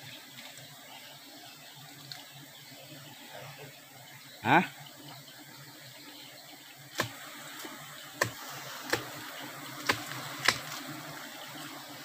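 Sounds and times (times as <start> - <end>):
honeybee colony humming: 0.0 - 12.0
hiss: 7.0 - 10.8.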